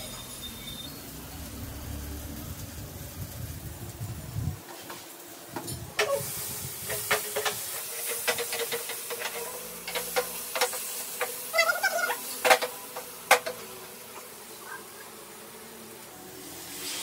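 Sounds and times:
mixture sizzling in a frying pan: 0.0 - 14.6, 16.3 - 17.0
spatula scraping and knocking pan: 6.8 - 13.6.

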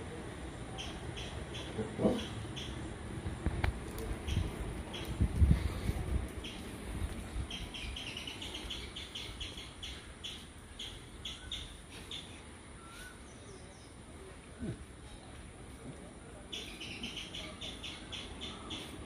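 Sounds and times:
small bird chirping: 0.7 - 2.9, 4.2 - 5.2, 6.4 - 6.7, 7.5 - 14.0, 16.5 - 19.0.

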